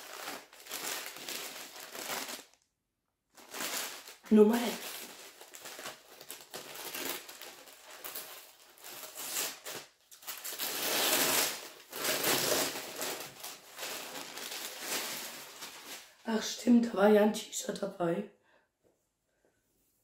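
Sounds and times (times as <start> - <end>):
paper crinkling and tearing: 0.0 - 2.6, 3.4 - 16.2.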